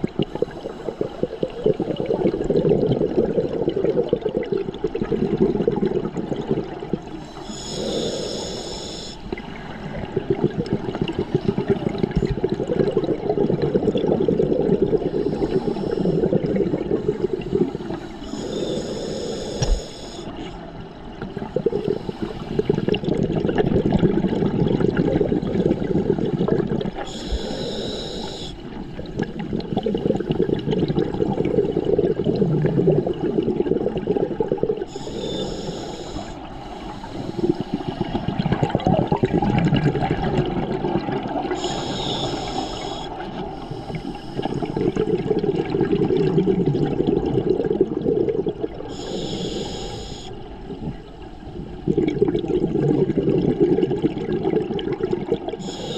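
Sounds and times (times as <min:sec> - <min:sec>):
exhaled bubbles rushing: 0:00.0 - 0:08.0, 0:09.2 - 0:18.7, 0:20.6 - 0:27.7, 0:28.6 - 0:35.5, 0:36.2 - 0:49.3, 0:50.6 - 0:55.9
regulator hissing inhale: 0:07.1 - 0:09.8, 0:15.0 - 0:20.6, 0:21.6 - 0:23.0, 0:27.0 - 0:29.4, 0:34.8 - 0:38.3, 0:41.5 - 0:45.2, 0:48.8 - 0:51.9, 0:55.6 - 0:55.9.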